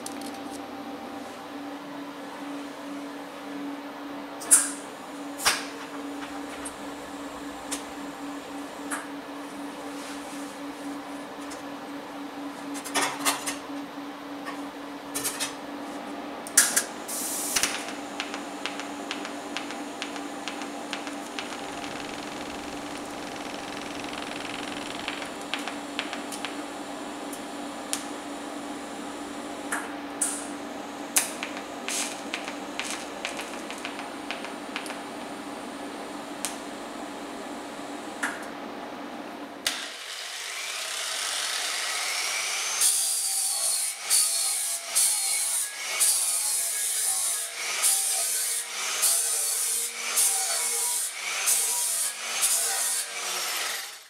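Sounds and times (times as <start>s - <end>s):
welding arc hum with crackles: 0.0s - 3.1s, 4.4s - 38.6s, 39.6s - 54.0s
angle grinder grinding: 19.2s - 26.1s.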